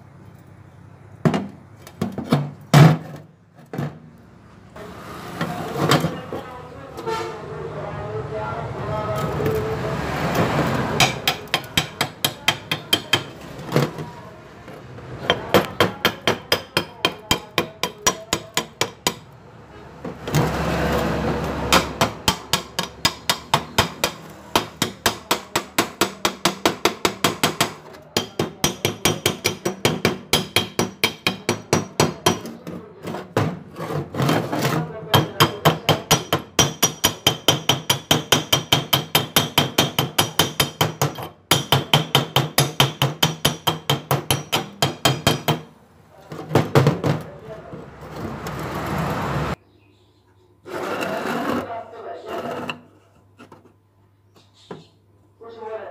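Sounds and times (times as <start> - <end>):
chipping hammer tapping on metal: 11.0 - 13.4, 15.3 - 19.3, 21.7 - 32.6, 35.1 - 45.7.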